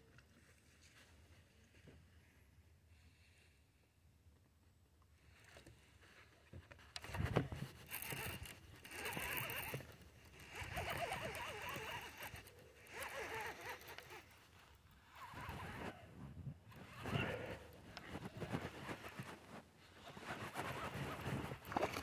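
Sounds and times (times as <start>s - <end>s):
fishing reel whirring: 7.8s - 15.8s.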